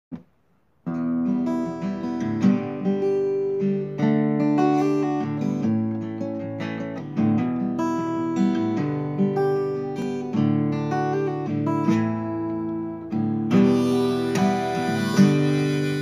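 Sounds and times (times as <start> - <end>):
acoustic guitar strumming: 0.9 - 16.0
harmonica holding notes: 13.5 - 16.0.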